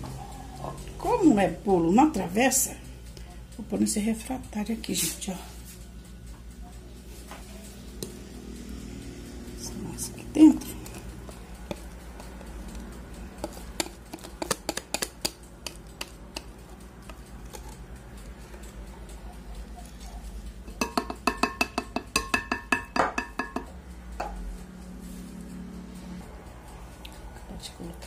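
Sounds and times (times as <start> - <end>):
whisk scraping and tapping glass bowl: 6.5 - 24.4.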